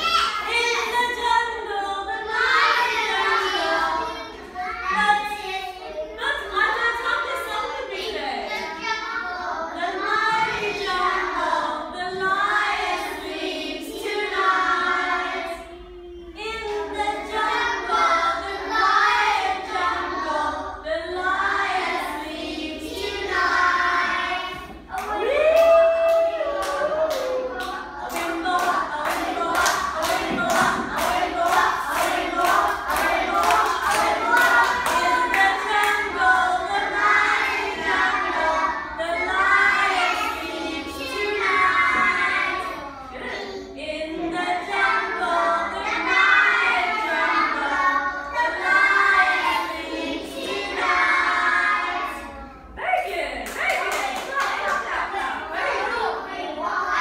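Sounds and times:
children singing together: 0.0 - 52.8, 53.8 - 57.0
rhythmic clapping: 23.9 - 38.6, 53.3 - 56.3.

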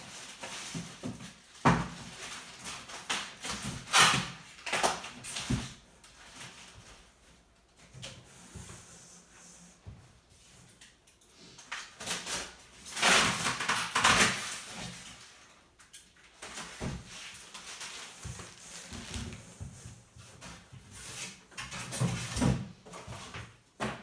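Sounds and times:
plastic wrapping crinkling: 12.0 - 19.6.

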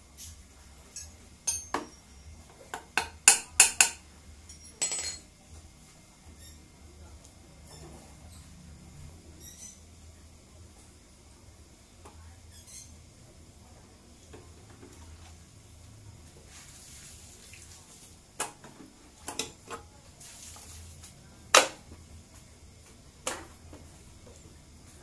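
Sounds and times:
metal parts clinking and knocking: 4.5 - 5.2.

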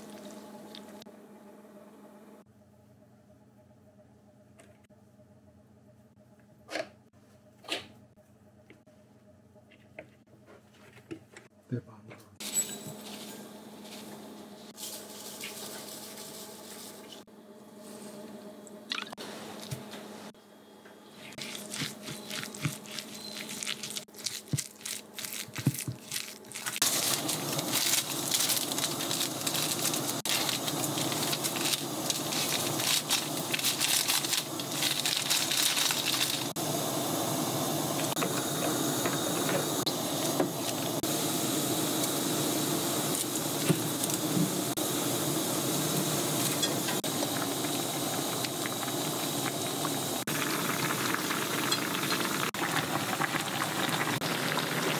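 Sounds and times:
broth bubbling and hissing: 26.5 - 54.9.

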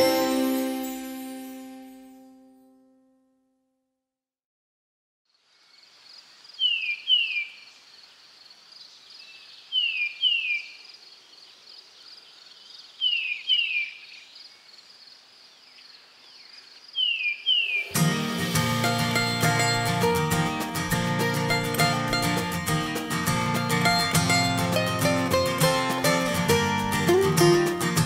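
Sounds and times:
insects trilling: 5.3 - 18.0.

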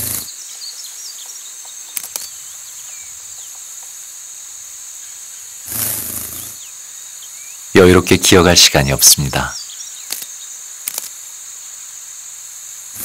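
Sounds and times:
rustle: 0.0 - 7.8, 9.2 - 13.0
insect chorus: 0.0 - 13.0
sharp clicks: 1.9 - 2.3, 10.0 - 11.2
bird chirps: 9.0 - 10.6.

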